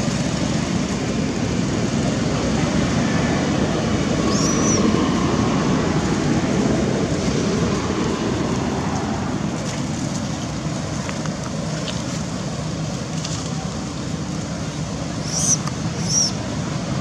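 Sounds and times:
baby monkey squealing: 0:04.3 - 0:04.8, 0:15.2 - 0:16.4.

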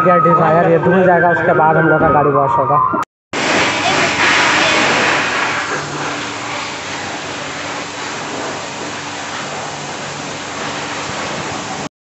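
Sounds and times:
low motor hum: 0:03.4 - 0:11.9
pressure washer water spray: 0:03.4 - 0:11.9.

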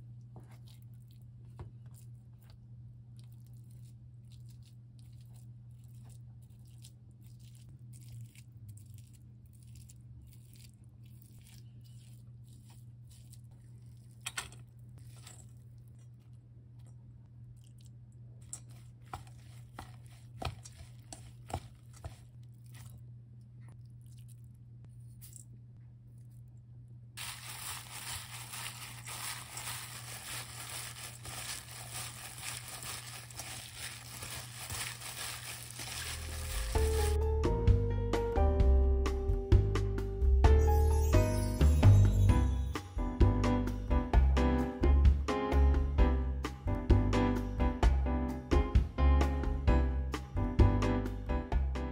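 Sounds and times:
gloved hand crinkling and squishing: 0:00.0 - 0:17.1, 0:17.7 - 0:23.1, 0:27.2 - 0:37.2
low steady hum: 0:00.0 - 0:40.4.

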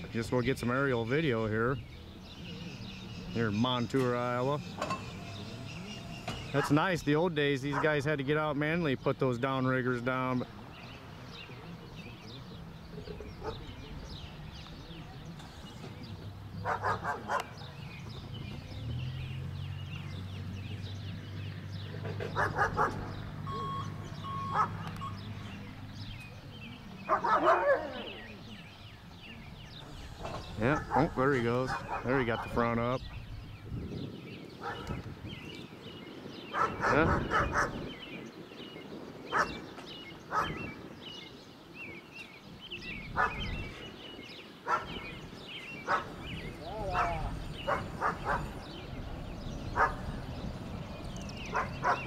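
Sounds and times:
small birds chirping: 0:00.0 - 0:52.0
dog barking: 0:07.7 - 0:08.0, 0:16.6 - 0:17.6, 0:22.4 - 0:23.1, 0:24.5 - 0:24.8, 0:27.1 - 0:28.1, 0:30.7 - 0:32.5, 0:34.6 - 0:35.0, 0:36.5 - 0:37.8, 0:39.3 - 0:39.6, 0:40.3 - 0:40.6, 0:43.2 - 0:43.5, 0:44.7 - 0:45.0, 0:45.8 - 0:46.2, 0:46.8 - 0:48.6, 0:49.7 - 0:50.1, 0:51.5 - 0:52.0
low engine hum: 0:10.4 - 0:35.5, 0:45.1 - 0:52.0.

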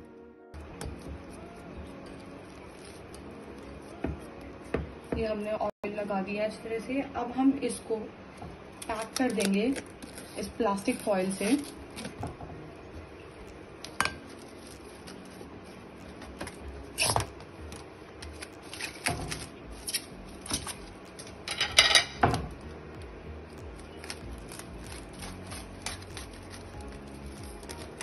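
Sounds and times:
cling film crinkling: 0:01.3 - 0:04.0, 0:08.8 - 0:12.2, 0:13.2 - 0:21.5, 0:22.6 - 0:28.0.

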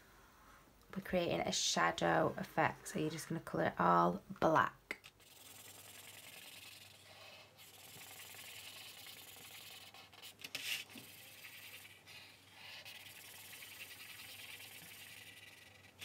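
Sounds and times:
marker scratching on paper: 0:05.2 - 0:16.0.

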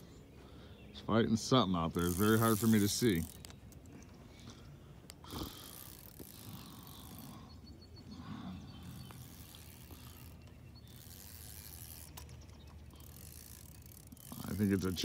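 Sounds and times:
fishing reel clicking and whirring: 0:01.8 - 0:03.8, 0:05.3 - 0:07.6, 0:08.8 - 0:15.0.

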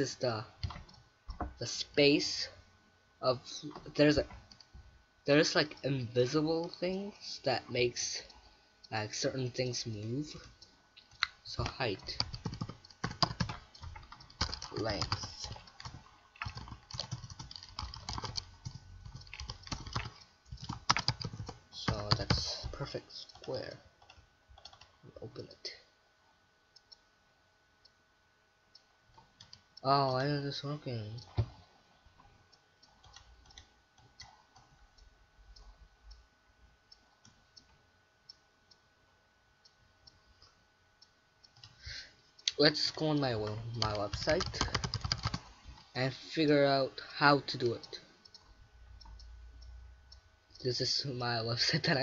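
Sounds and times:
faint steady hum: 0:00.0 - 0:52.0
typing on computer keyboard: 0:11.6 - 0:22.7, 0:23.3 - 0:24.9, 0:32.9 - 0:34.8, 0:43.5 - 0:45.5.

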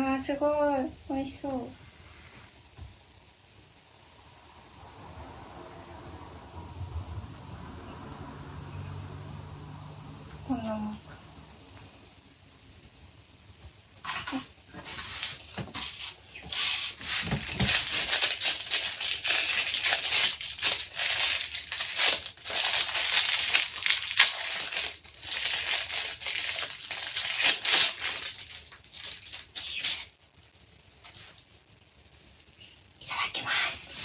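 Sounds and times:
plastic wrapper crinkling: 0:14.0 - 0:30.1.

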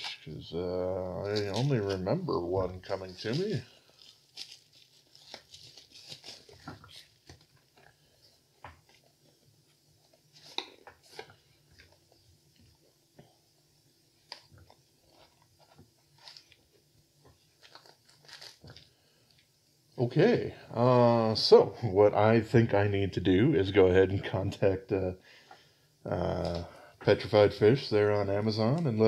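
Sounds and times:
bubble wrap crinkling: 0:01.0 - 0:12.9, 0:14.1 - 0:19.5, 0:26.2 - 0:26.7.

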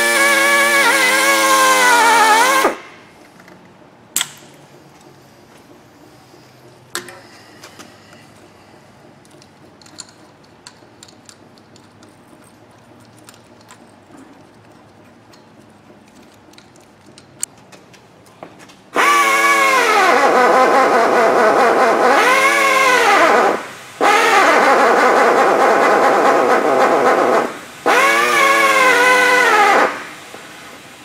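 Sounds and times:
air drill whining: 0:00.0 - 0:03.1, 0:19.0 - 0:30.8.

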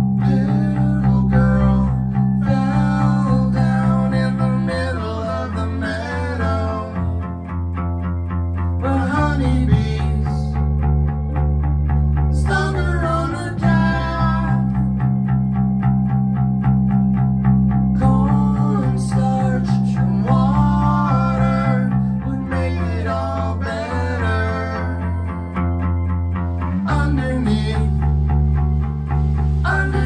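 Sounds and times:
electric bass low notes: 0:00.0 - 0:30.0
electric guitar: 0:00.0 - 0:30.0
man singing: 0:00.2 - 0:07.3, 0:08.8 - 0:10.6, 0:12.4 - 0:14.8, 0:18.0 - 0:25.2, 0:26.9 - 0:28.0, 0:29.6 - 0:30.0.

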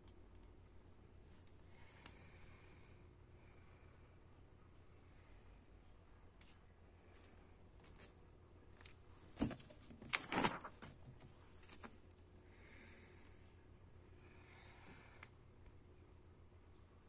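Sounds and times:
faint steady hum: 0:00.0 - 0:17.0
book page rustling: 0:08.8 - 0:12.0.

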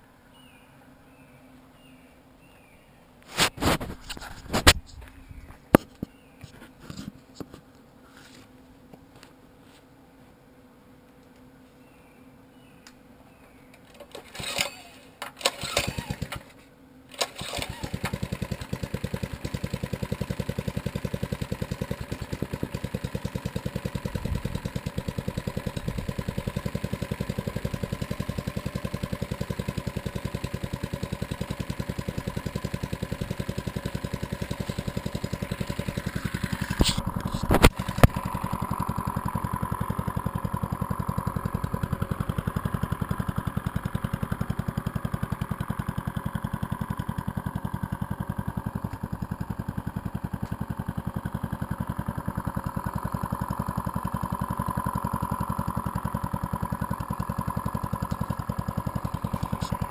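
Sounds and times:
small engine putter: 0:03.3 - 0:07.6, 0:13.7 - 0:59.9
recoil starter pulls: 0:13.8 - 0:59.9.

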